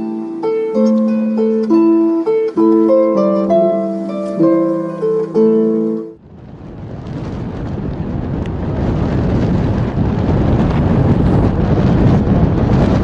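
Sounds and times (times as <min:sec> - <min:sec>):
wind buffeting microphone: 0:06.2 - 0:13.0.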